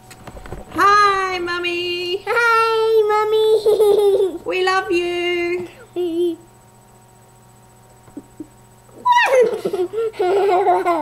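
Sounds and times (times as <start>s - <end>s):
faint steady hum: 0.0s - 11.0s
boy laughing: 3.5s - 4.5s, 8.1s - 11.0s
boy squealing: 9.0s - 9.7s.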